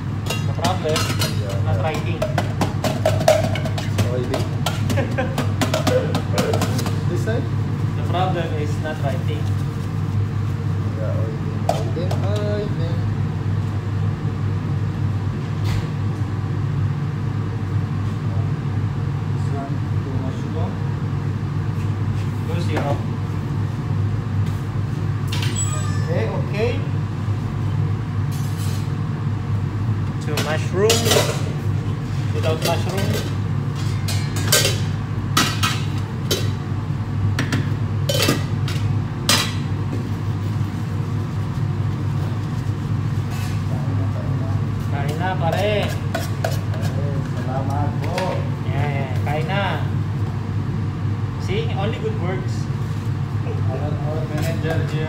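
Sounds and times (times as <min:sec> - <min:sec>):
extractor hood fan humming: 0:00.0 - 0:55.0
utensils and dishes clattering: 0:00.2 - 0:07.1, 0:30.2 - 0:31.6, 0:32.3 - 0:36.6, 0:37.4 - 0:39.6.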